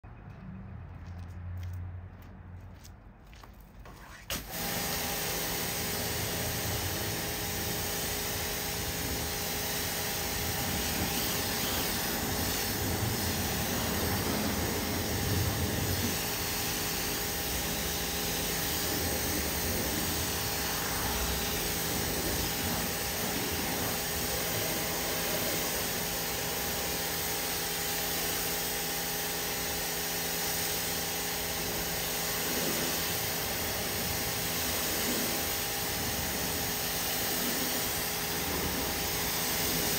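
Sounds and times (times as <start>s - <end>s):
pressure washer spraying water: 3.9s - 39.9s
steady machine hum: 4.5s - 27.5s.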